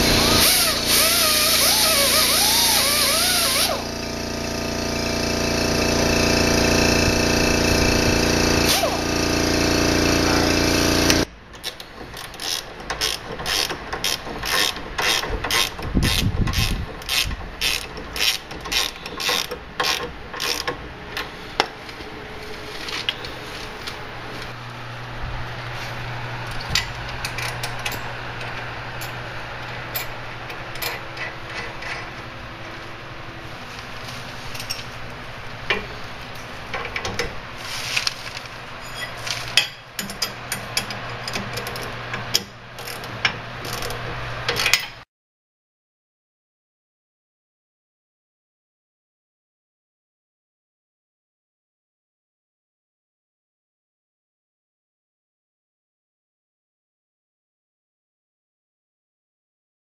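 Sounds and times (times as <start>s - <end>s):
rotary grinder on metal: 0.0s - 4.0s, 12.2s - 20.7s
ratchet wrench clicking: 11.6s - 20.8s.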